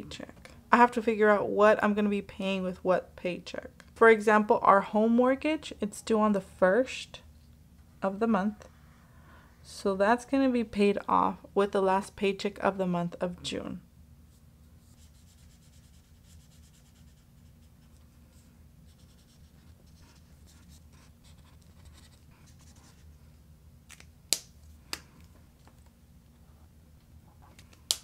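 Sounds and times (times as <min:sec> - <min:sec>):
marker rubbing on paper: 0:14.8 - 0:23.1.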